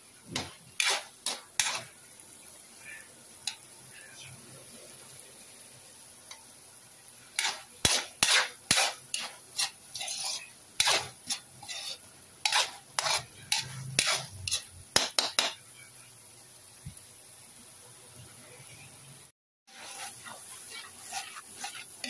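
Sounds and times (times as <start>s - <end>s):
metal spatula scraping a wok: 0.4s - 2.0s, 7.3s - 15.6s, 19.7s - 22.0s.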